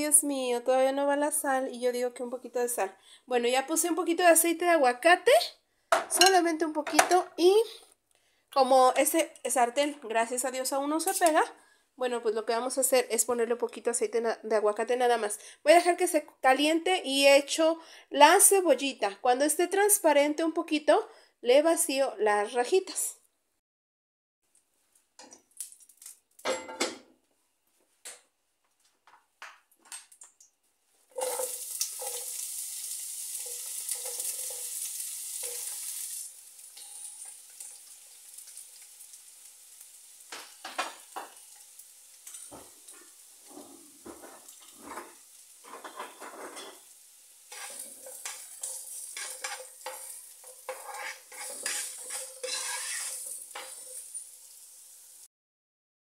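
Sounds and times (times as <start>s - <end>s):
utensil stirring and scraping pan: 31.0s - 38.6s, 40.6s - 54.6s
onion sizzling in hot oil: 31.0s - 55.3s.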